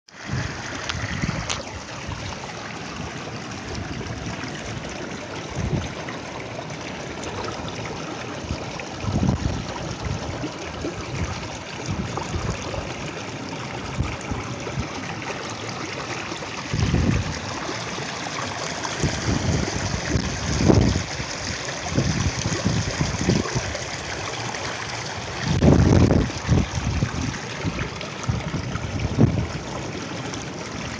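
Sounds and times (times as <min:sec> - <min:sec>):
stream trickling over stones: 0:00.1 - 0:30.9
low rumbles on microphone: 0:08.5 - 0:13.2, 0:16.7 - 0:17.6, 0:18.9 - 0:23.8, 0:25.4 - 0:29.7.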